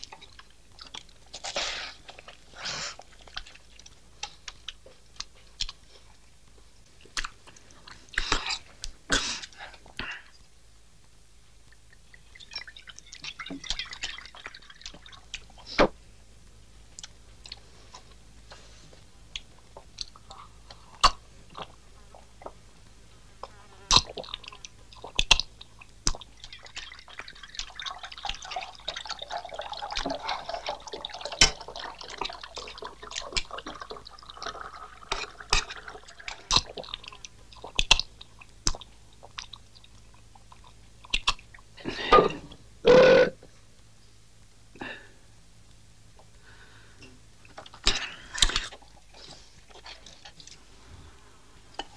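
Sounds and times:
wet chewing and slurping: 0.1 - 5.8, 23.9 - 41.6, 47.7 - 50.6.

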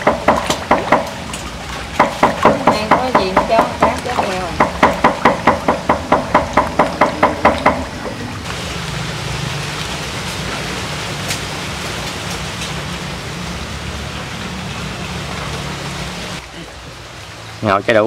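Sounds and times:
rapid even knocking: 0.0 - 1.2, 2.0 - 8.2
water pattering on a pond: 0.0 - 18.0.

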